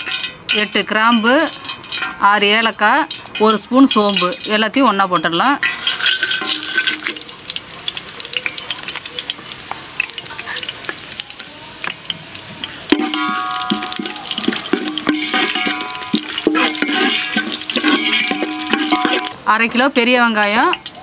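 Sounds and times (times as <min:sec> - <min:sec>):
pot ringing: 0:00.0 - 0:07.4, 0:12.1 - 0:19.6
spices sizzling in hot oil: 0:00.0 - 0:21.0
metal ladle scraping a pot: 0:05.6 - 0:07.3, 0:12.8 - 0:19.4.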